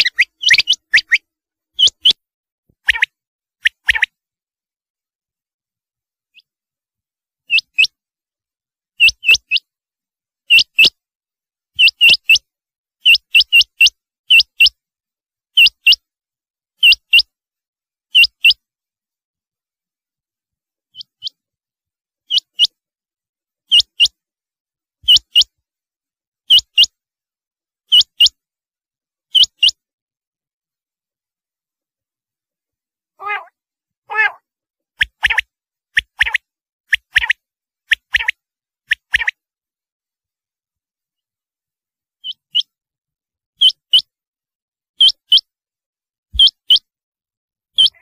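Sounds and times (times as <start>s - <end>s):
quail calling: 0.0s - 1.2s, 33.2s - 33.5s, 34.1s - 34.4s, 47.8s - 48.0s.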